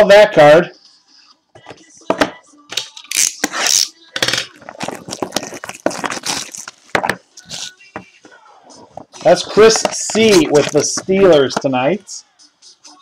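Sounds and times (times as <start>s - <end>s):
cards rustling and clicking: 3.3s - 7.7s, 9.0s - 11.7s.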